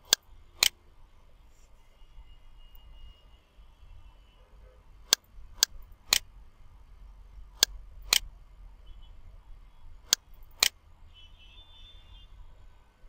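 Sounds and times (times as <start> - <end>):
faint low hum: 0.0 - 13.0
computer mouse clicking: 5.1 - 6.3, 7.6 - 8.3, 10.0 - 10.8.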